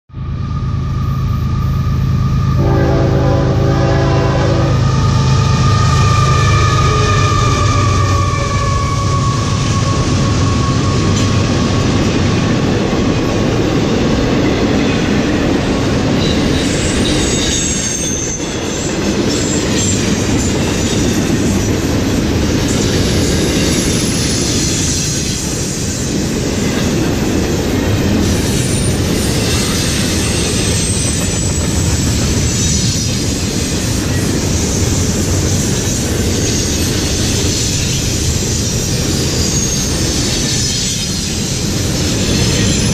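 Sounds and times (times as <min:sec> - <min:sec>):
train wheels rumbling on rails: 0:00.1 - 0:42.9
high wheel squeal: 0:04.6 - 0:12.2, 0:16.2 - 0:21.4, 0:22.7 - 0:26.2, 0:28.2 - 0:42.9.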